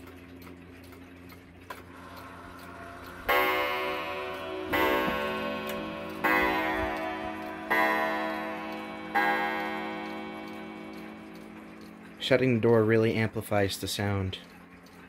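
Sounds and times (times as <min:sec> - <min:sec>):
clock ticking: 0:00.0 - 0:15.0
clock striking on a wire gong: 0:03.2 - 0:13.1.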